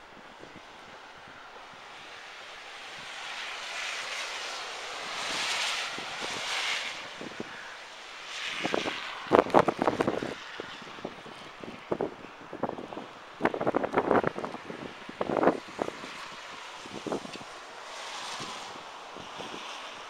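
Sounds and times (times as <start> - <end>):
tyres hissing through slush: 0.7 - 10.8, 15.4 - 20.0
wind buffeting microphone: 4.2 - 20.0.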